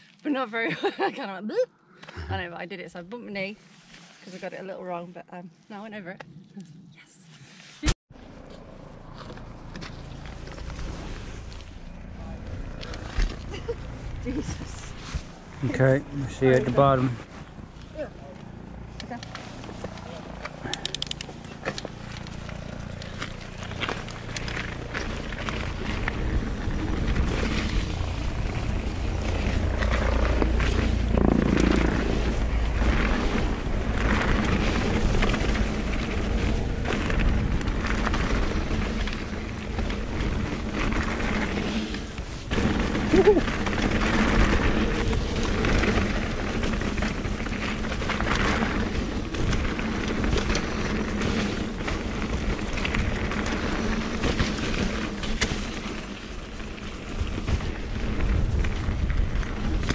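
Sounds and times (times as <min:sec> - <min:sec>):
bike tyre noise: 0:07.4 - 0:59.9
bike knocking and rattling: 0:08.3 - 0:59.9
wind buffeting microphone: 0:24.8 - 0:55.2, 0:57.0 - 0:59.9.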